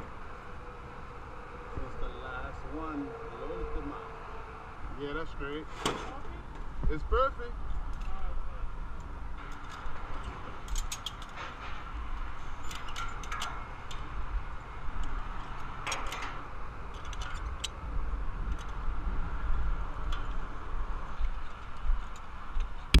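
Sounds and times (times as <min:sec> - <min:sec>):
wind rumbling on microphone: 0:06.3 - 0:23.0
metal hooks clinking on steel: 0:12.5 - 0:14.1.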